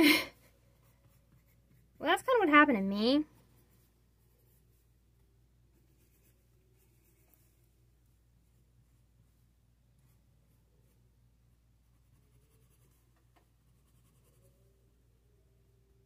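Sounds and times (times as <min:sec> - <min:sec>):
low steady hum: 0:00.0 - 0:16.0
pencil scratching on paper: 0:00.8 - 0:02.5, 0:05.7 - 0:07.6, 0:11.8 - 0:14.6.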